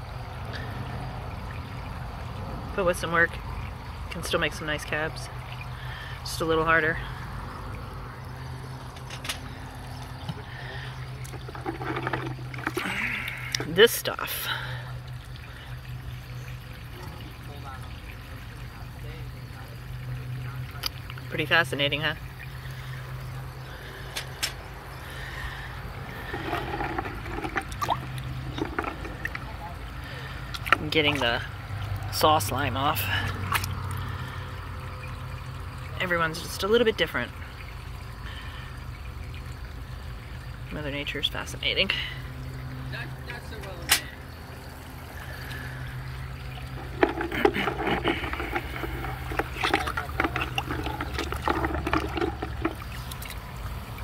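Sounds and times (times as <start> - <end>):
small knocks in water: 8.9 - 13.8, 24.1 - 24.7, 26.1 - 32.1, 43.6 - 44.2, 46.4 - 54.0
hand sloshing through bucket water: 9.7 - 13.8, 25.3 - 31.4, 46.4 - 54.0.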